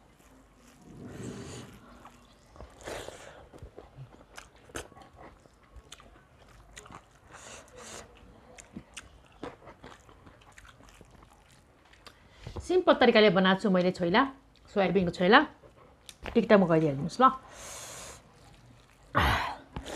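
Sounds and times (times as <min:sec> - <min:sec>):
chewing and biting food: 0:00.0 - 0:12.5, 0:15.6 - 0:16.4, 0:18.0 - 0:19.9.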